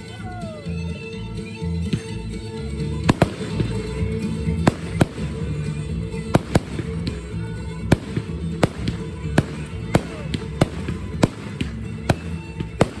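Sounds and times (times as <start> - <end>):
background music: 0.0 - 13.0
fireworks bangs: 4.6 - 5.6, 6.3 - 7.1, 7.9 - 13.0.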